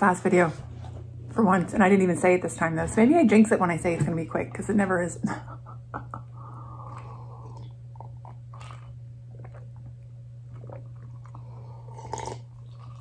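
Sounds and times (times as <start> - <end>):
low hum: 0.0 - 13.0
person gulping water: 6.8 - 13.0.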